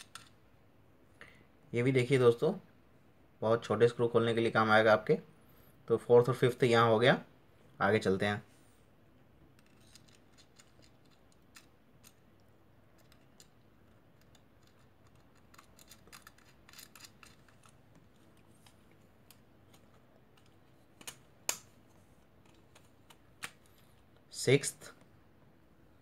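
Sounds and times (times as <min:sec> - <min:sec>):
screwdriver bits clicking: 0:14.2 - 0:17.8.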